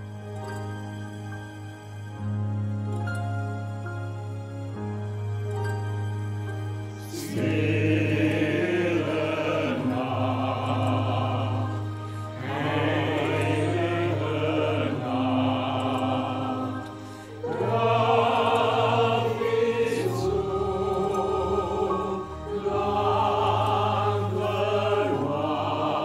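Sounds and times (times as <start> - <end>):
instrumental accompaniment: 0.0 - 26.0
mixed choir singing a carol: 7.0 - 26.0.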